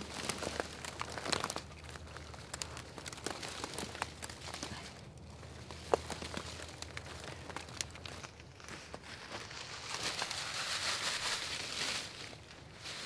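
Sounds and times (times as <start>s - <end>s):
twig sharp crack: 0.0s - 5.0s
twigs and leaves crackling: 0.0s - 13.0s.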